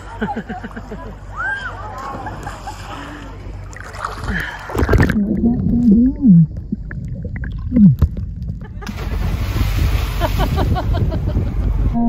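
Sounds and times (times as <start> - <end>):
sea water lapping and splashing: 2.0 - 11.8
low wobbling tone: 3.8 - 12.0
muffled underwater gurgling: 4.2 - 8.8.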